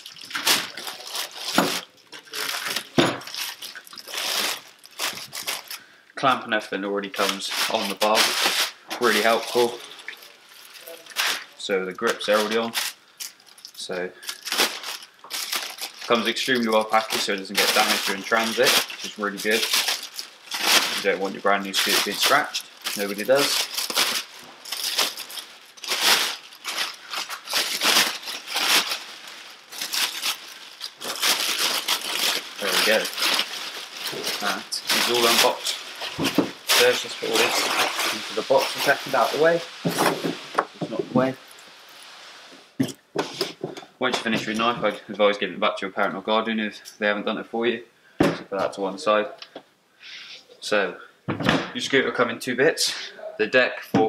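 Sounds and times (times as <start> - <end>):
plastic wrap crinkling and tearing: 0.0 - 5.9, 7.0 - 40.6.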